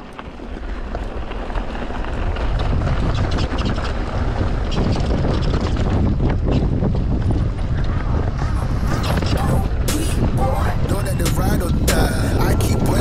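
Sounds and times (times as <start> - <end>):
bike rattling over rough ground: 0.0 - 8.6
wind buffeting microphone: 0.0 - 13.0.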